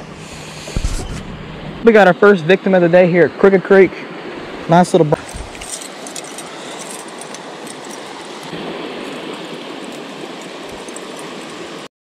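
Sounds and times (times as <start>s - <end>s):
creek water rushing: 0.0s - 11.9s
metal chain clinking: 5.2s - 11.8s.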